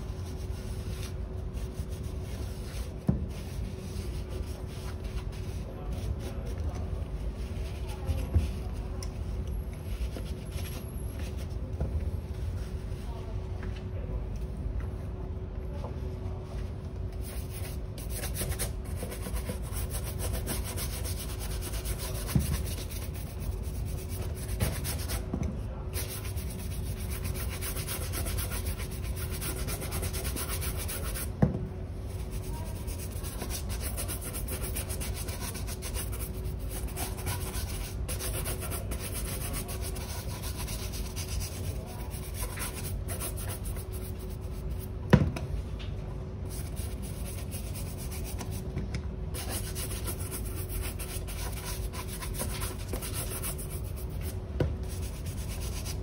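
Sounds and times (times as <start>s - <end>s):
shoe brush scrubbing leather: 32.3s - 41.6s.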